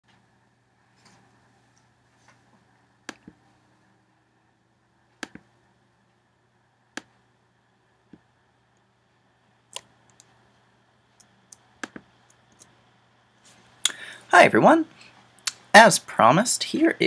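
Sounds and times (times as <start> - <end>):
faint low hum: 0.1 - 17.0
computer mouse clicks: 5.2 - 5.5, 9.7 - 10.4, 11.2 - 12.7.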